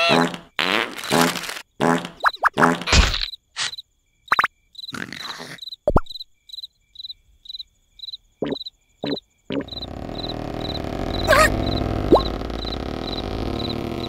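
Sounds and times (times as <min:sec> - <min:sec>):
cartoon squeak: 0:00.0 - 0:00.4, 0:11.1 - 0:12.4
crickets chirping: 0:03.2 - 0:14.0.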